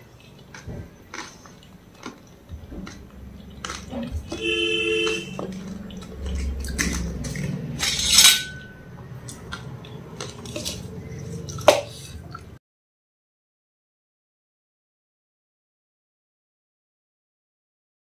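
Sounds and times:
steel plate and spoon clinking: 6.8s - 8.9s.

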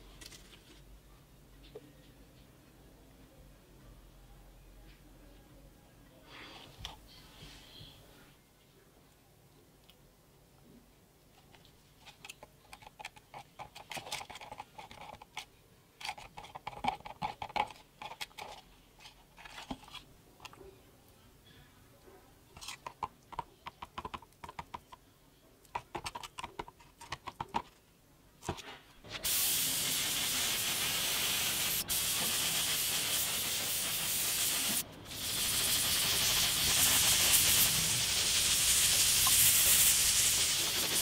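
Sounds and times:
paint sprayer hissing: 29.1s - 41.0s.

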